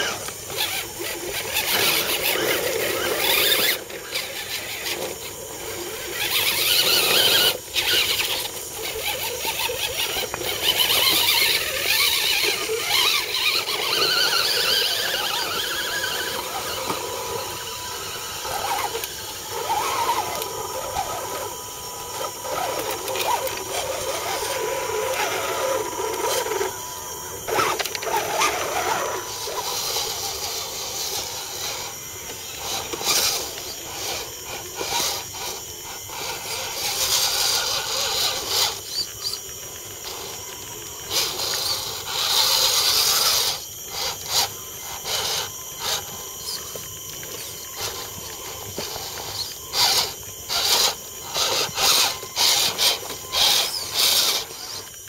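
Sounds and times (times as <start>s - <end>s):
small electric motors whining: 0.0s - 55.0s.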